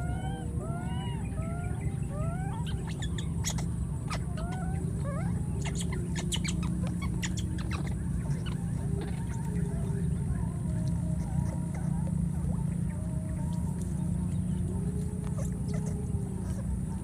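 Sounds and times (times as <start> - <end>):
baby monkeys cooing: 0.0 - 17.0
sharp squeaks: 2.6 - 9.4.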